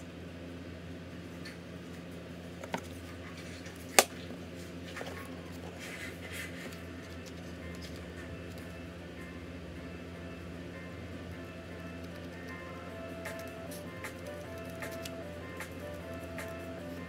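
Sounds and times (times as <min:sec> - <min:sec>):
low hum: 0:00.0 - 0:17.0
paper sheets rustling: 0:02.8 - 0:08.7.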